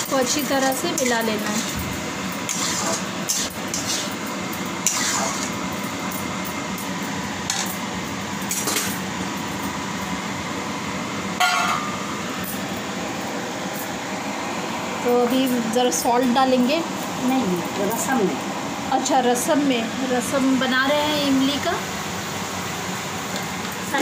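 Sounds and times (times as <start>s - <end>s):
spatula scraping metal pan: 2.5s - 4.2s, 4.8s - 5.5s.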